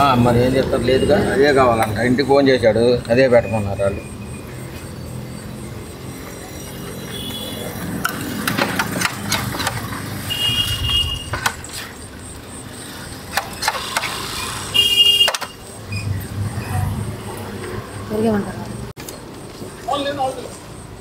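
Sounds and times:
vehicle engines running: 0:00.0 - 0:21.0
short high-pitched beeps: 0:03.2 - 0:07.7.

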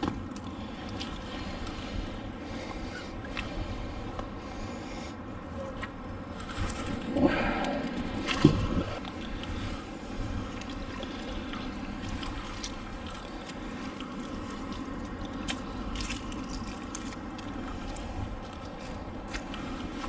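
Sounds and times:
water trickling: 0:08.2 - 0:20.0.

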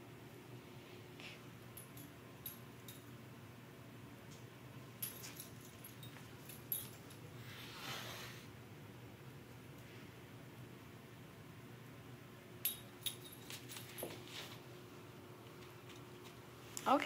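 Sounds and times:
light metallic tinkles: 0:01.6 - 0:03.2, 0:04.9 - 0:07.5, 0:12.6 - 0:14.5.

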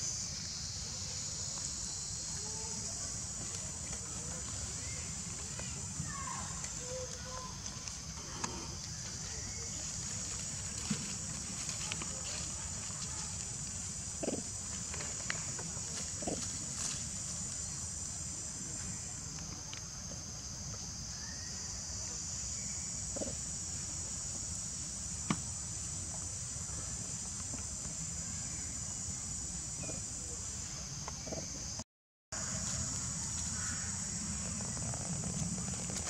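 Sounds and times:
high-pitched insect drone: 0:00.0 - 0:14.6.

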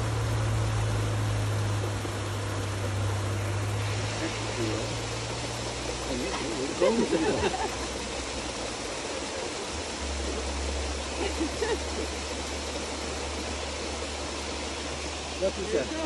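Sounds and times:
stream water rushing: 0:00.0 - 0:16.0.

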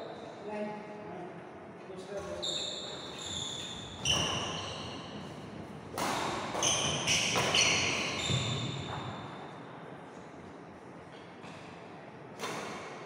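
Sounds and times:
shoes squeaking on wooden court: 0:02.1 - 0:09.6
racket striking shuttlecock: 0:05.9 - 0:08.4.

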